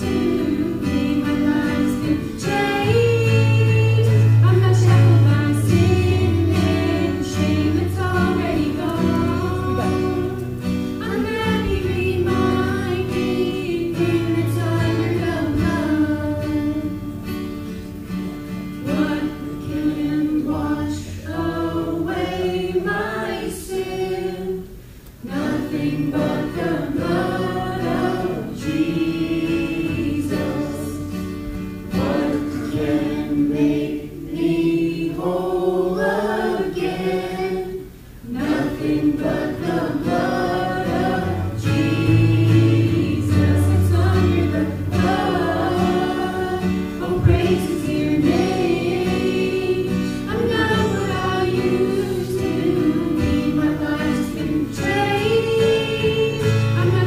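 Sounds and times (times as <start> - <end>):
boy singing: 0.0 - 10.5, 11.1 - 17.0
woman singing: 0.0 - 17.1, 18.8 - 24.6, 25.3 - 31.1, 35.9 - 57.0
strummed acoustic guitar: 0.0 - 35.4, 36.0 - 57.0.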